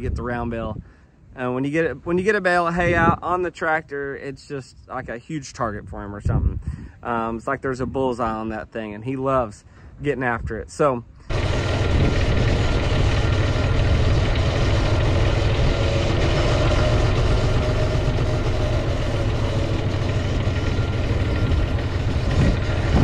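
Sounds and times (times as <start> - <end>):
tractor engine running: 11.3 - 23.0.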